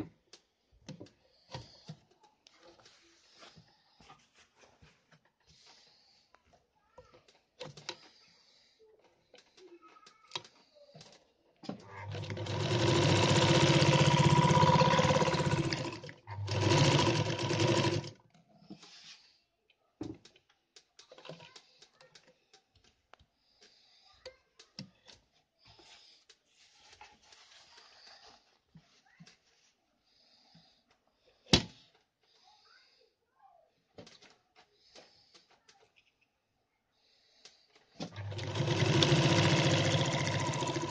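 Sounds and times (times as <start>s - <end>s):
faint clicks and handling: 0.0s - 8.3s, 8.9s - 12.0s, 18.2s - 29.8s
sewing machine stitching: 11.6s - 18.2s, 38.0s - 40.9s.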